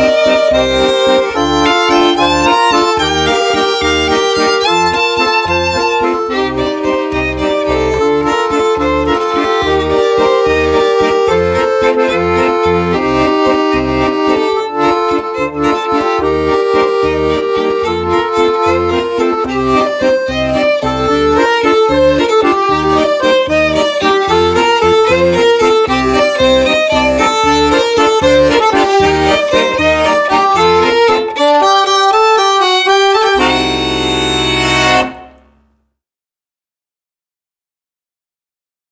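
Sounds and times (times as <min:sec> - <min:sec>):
violin melody: 0:00.0 - 0:35.7
accordion bass and chords: 0:00.0 - 0:35.9.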